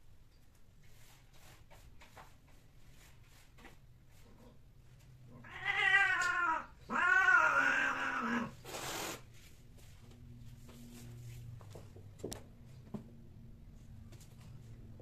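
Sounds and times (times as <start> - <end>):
cat yowling: 5.4 - 8.6
cat hissing: 5.4 - 9.3.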